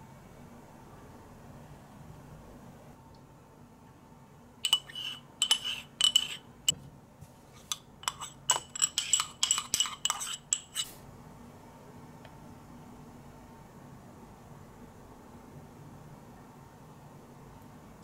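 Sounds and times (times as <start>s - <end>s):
metal spoon clinking in cup: 4.6s - 6.4s, 7.7s - 10.8s.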